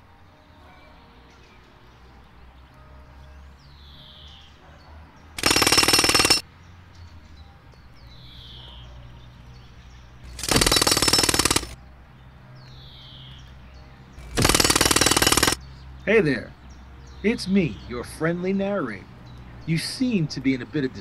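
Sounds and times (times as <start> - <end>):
jackhammer hammering: 5.4 - 6.4, 10.3 - 11.8, 14.2 - 15.6.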